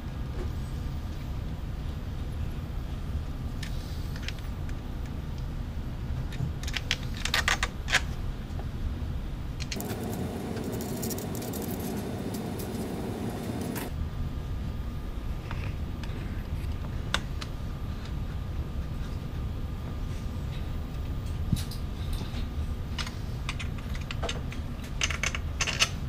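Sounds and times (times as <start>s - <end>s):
steady low rumble: 8.2s - 21.0s.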